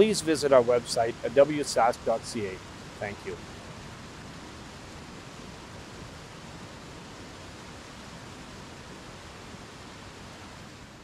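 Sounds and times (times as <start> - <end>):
floodwater rushing: 0.0 - 4.0.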